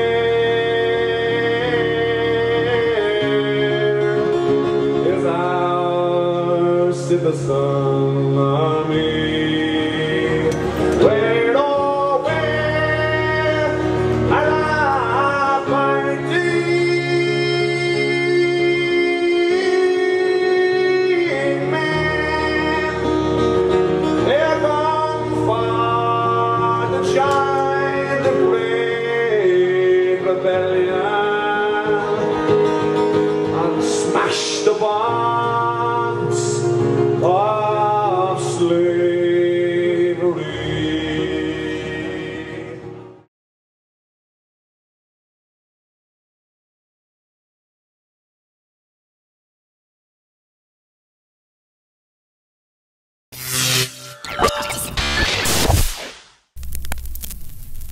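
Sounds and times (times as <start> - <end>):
man singing a slow ballad: 0.0 - 43.2
strummed acoustic guitar: 0.0 - 43.2.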